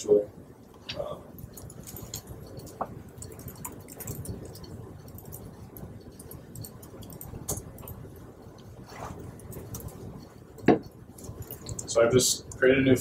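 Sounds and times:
low room hum: 0.0s - 13.0s
laptop keyboard typing: 1.4s - 12.7s.

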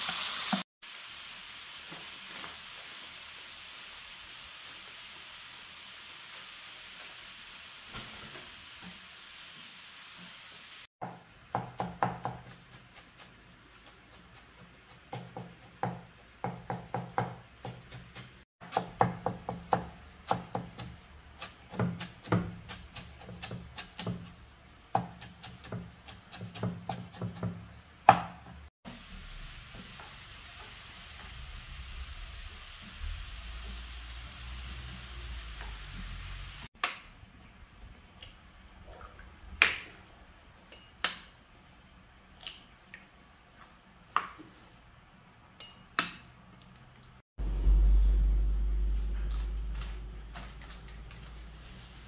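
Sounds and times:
food sizzling in a pan: 0.0s - 10.9s, 28.8s - 36.7s
chopping on wooden cutting board: 11.0s - 12.8s, 14.9s - 24.3s, 25.0s - 28.6s.

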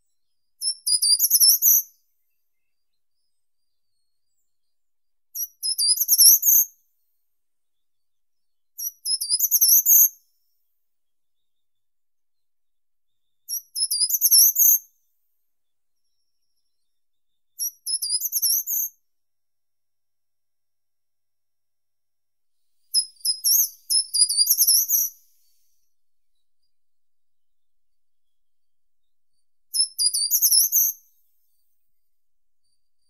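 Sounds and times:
bird singing high phrases: 0.6s - 1.8s, 5.3s - 6.6s, 8.8s - 10.1s, 13.4s - 14.8s, 16.0s - 18.9s, 22.9s - 25.9s, 29.0s - 31.8s.

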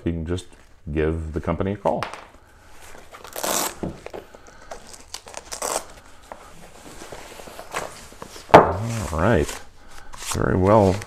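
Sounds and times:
cloth rustling: 2.6s - 11.0s.

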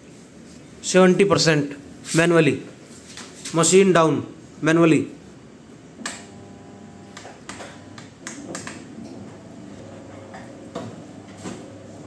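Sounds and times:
machine drive humming: 5.9s - 12.0s.

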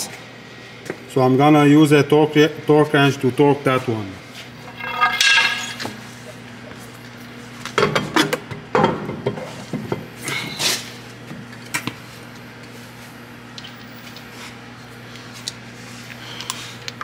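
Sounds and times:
steady low hum: 4.1s - 7.6s
metal knocks and clinks of tools: 4.7s - 6.0s.

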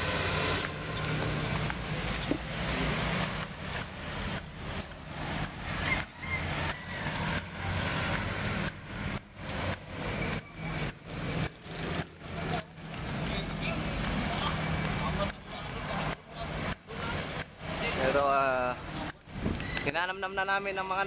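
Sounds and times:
road traffic hum: 0.0s - 21.0s
footsteps: 0.4s - 3.6s.

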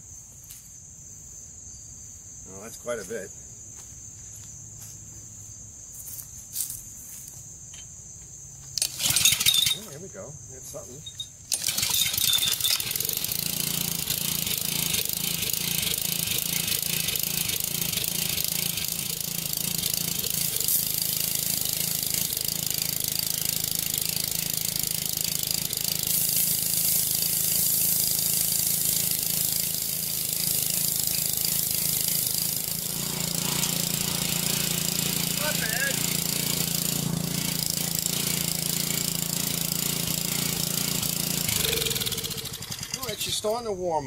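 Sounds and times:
small engine running: 8.7s - 43.8s
high hiss: 11.7s - 43.8s.

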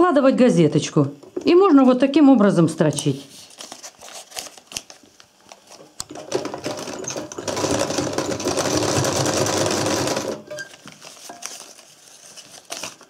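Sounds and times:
sewing machine stitching: 6.1s - 10.7s.

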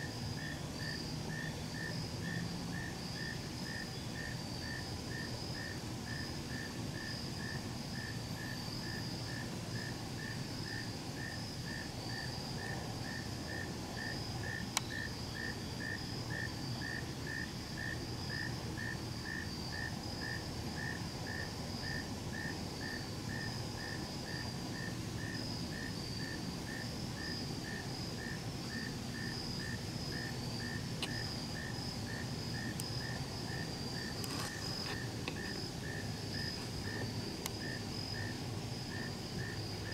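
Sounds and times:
high insect trill: 0.0s - 39.9s
insect chirping: 0.0s - 39.9s.

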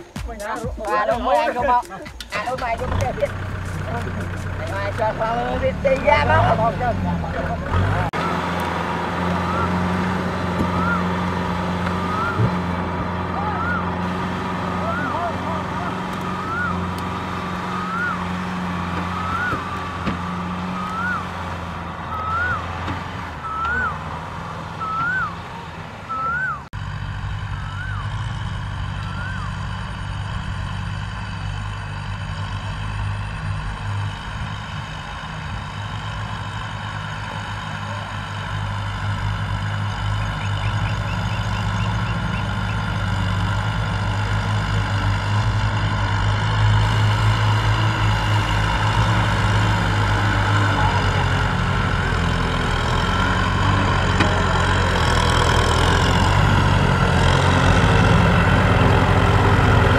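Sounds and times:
tractor diesel engines running: 0.0s - 59.9s
short rising chirp: 20.6s - 21.4s, 22.0s - 22.8s, 24.7s - 25.4s.

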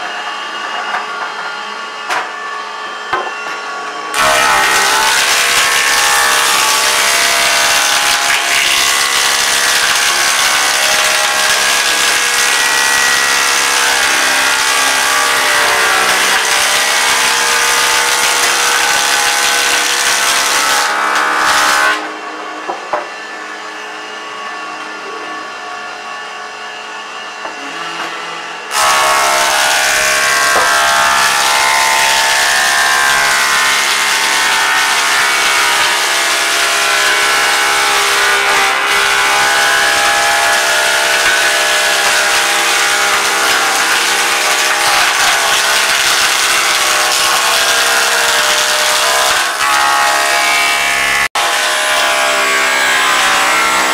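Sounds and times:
planer cutting wood: 0.0s - 53.9s
planer running idle: 4.2s - 21.8s.

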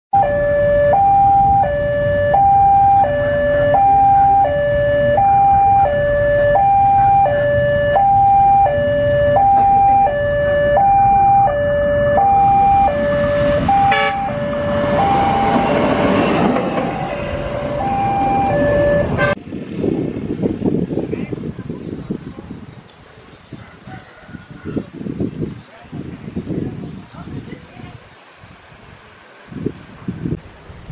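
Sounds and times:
two-tone crossing alarm: 0.2s - 19.4s
train rushing past: 11.9s - 19.4s.

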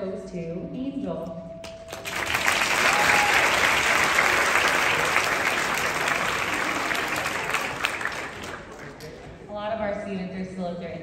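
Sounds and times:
audience applauding: 1.9s - 9.3s.

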